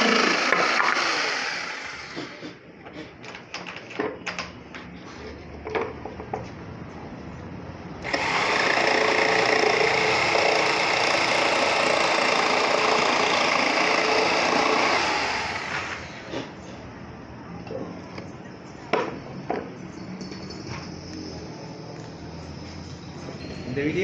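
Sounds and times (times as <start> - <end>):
electric jigsaw cutting plywood: 0.0 - 2.4, 8.0 - 16.3.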